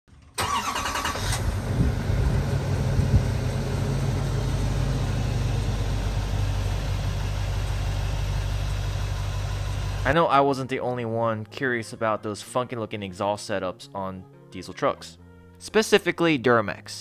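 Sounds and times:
diesel pickup idling: 0.4 - 10.2.

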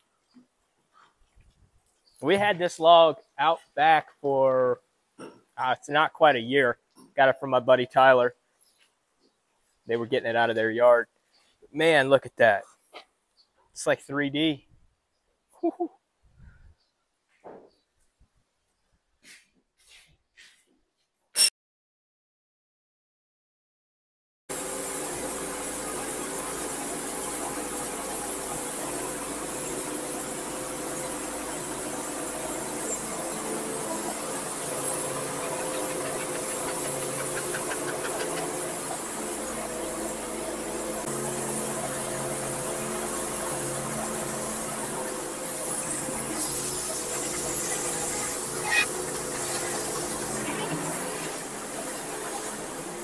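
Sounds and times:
bandsaw mill cutting a log: 24.5 - 53.0.

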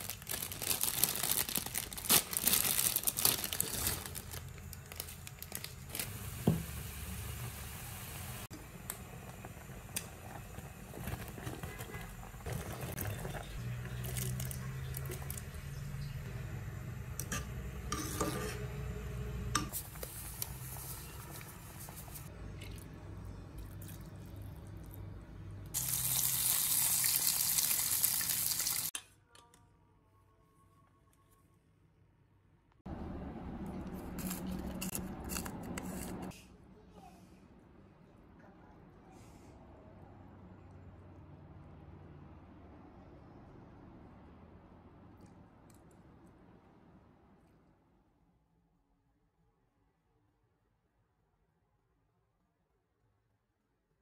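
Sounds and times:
water sloshing in a pot: 9.3 - 16.2
egg sizzling in hot oil: 25.8 - 28.9.

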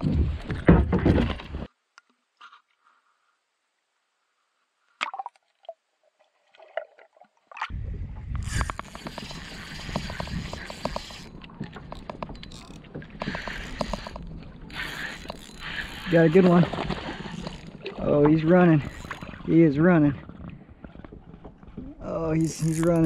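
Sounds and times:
water splashing around kayak: 5.0 - 23.0
wind on microphone: 7.7 - 11.3.

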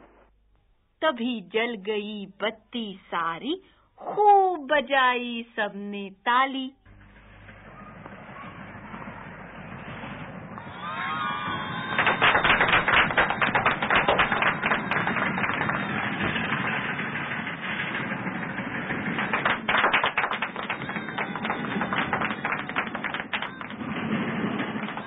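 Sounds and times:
crowd applauding: 7.6 - 25.0.

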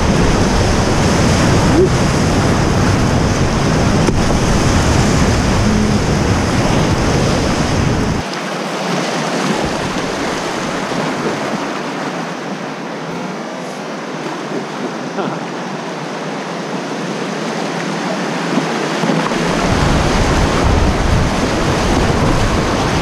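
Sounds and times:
deep rumble: 0.0 - 8.2
whitewater rapids rushing: 0.0 - 23.0.

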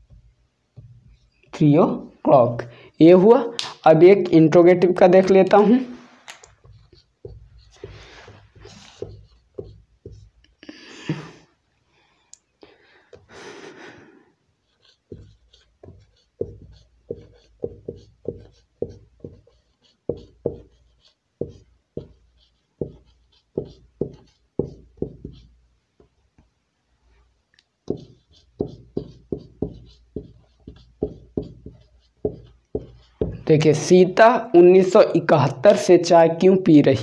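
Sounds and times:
marker pen writing on whiteboard: 0.0 - 2.1, 3.0 - 10.6, 14.6 - 26.2, 27.8 - 34.3.

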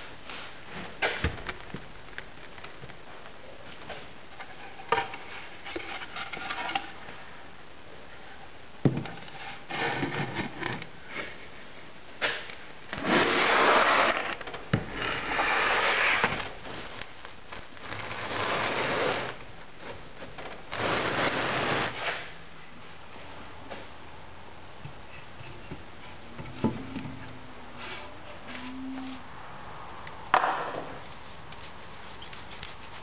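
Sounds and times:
wood scraping over bench: 13.0 - 16.4, 20.7 - 22.3
sharp knocks on wood: 30.3 - 30.9.

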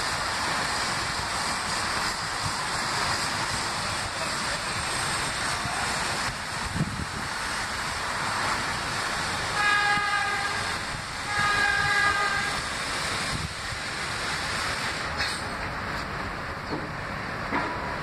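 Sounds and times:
distant train rumble on steel track: 0.0 - 18.0
wind on microphone: 5.4 - 7.4, 9.8 - 13.8.

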